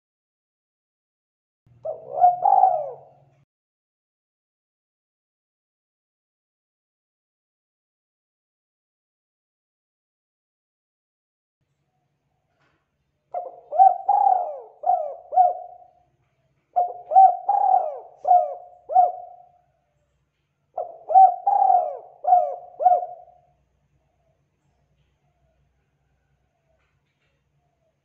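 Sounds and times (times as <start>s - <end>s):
dove cooing: 1.8s - 3.4s, 13.3s - 16.1s, 16.7s - 19.6s, 20.7s - 23.6s.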